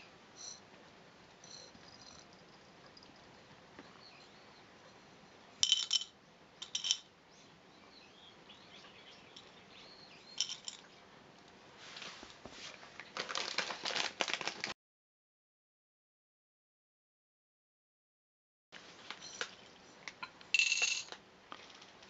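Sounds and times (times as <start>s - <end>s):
kibble rattling into bowl: 10.4s - 10.8s.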